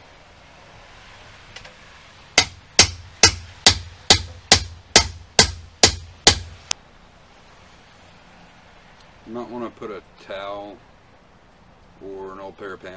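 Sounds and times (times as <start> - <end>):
hammer striking metal with ring: 2.4 - 6.6.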